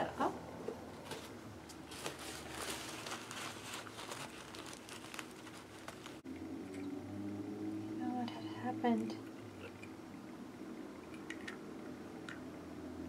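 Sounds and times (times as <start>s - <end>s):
paper towel crinkling: 1.8s - 6.2s.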